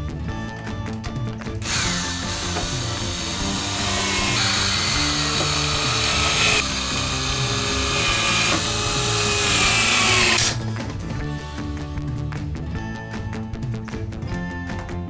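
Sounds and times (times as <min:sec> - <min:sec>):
background music: 0:00.0 - 0:15.0
cordless drill driving screws: 0:01.6 - 0:10.6.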